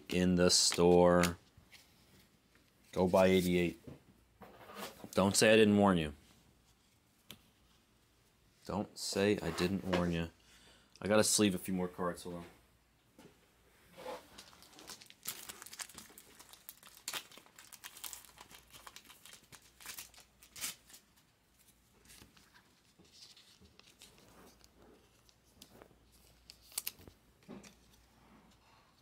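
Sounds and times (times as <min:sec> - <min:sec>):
plastic sleeves crinkling: 0:14.0 - 0:28.2.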